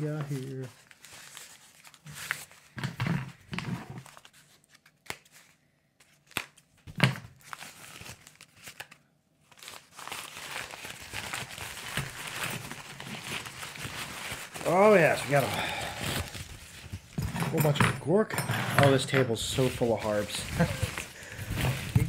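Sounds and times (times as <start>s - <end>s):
paper tearing and crumpling: 0.0s - 2.8s, 3.9s - 5.6s, 7.3s - 17.2s, 19.6s - 22.0s.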